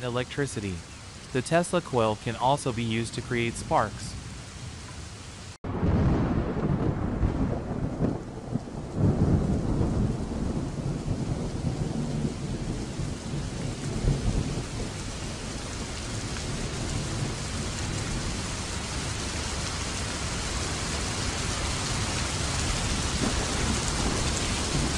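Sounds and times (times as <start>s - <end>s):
steady rain: 0.0s - 24.9s
thunder rumbling: 5.6s - 24.9s.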